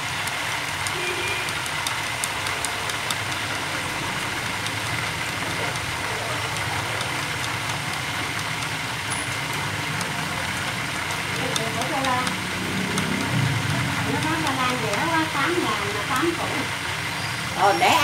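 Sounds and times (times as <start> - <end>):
chopsticks beating eggs in bowl: 0.0 - 18.0.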